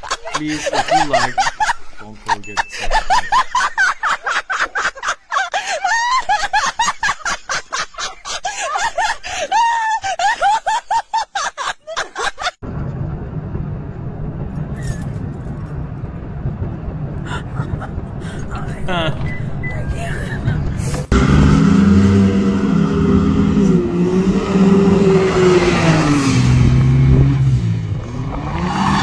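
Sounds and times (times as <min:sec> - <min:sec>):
people talking and laughing: 0:00.0 - 0:09.7, 0:17.3 - 0:21.1
vehicle engine humming: 0:12.6 - 0:29.0.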